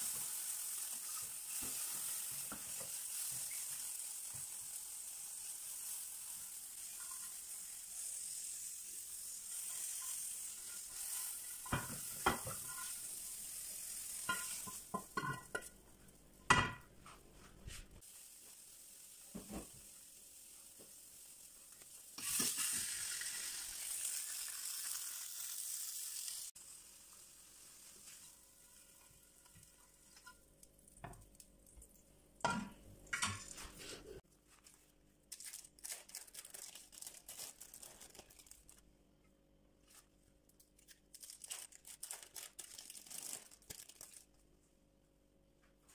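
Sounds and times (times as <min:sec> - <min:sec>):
food sizzling in a frying pan: 0:00.0 - 0:15.7, 0:18.0 - 0:31.2
spatula scraping and knocking pan: 0:09.5 - 0:13.1, 0:14.2 - 0:17.2.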